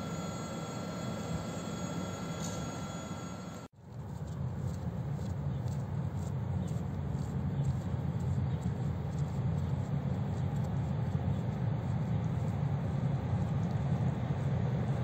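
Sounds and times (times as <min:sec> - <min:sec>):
electric train rumbling: 0:00.0 - 0:03.7
distant road traffic: 0:00.0 - 0:15.0.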